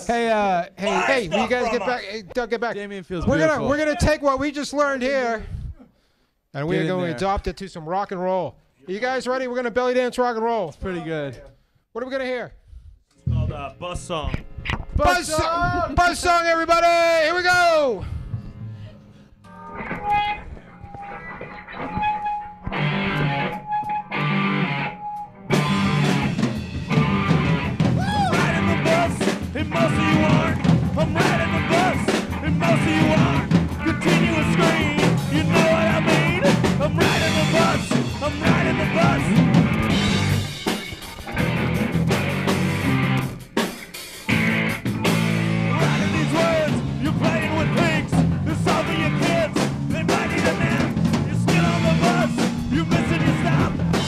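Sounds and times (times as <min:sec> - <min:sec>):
electric guitar: 0:19.5 - 0:54.0
live rock band: 0:19.5 - 0:54.0.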